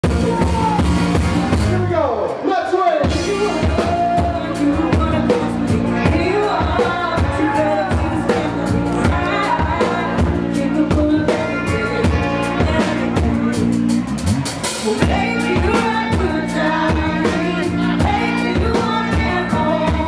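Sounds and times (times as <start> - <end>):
bass guitar: 0.0 - 2.4, 3.0 - 20.0
drum kit beat: 0.0 - 2.4, 3.0 - 20.0
woman singing: 3.1 - 13.6, 14.8 - 20.0
electric guitar: 3.1 - 20.0.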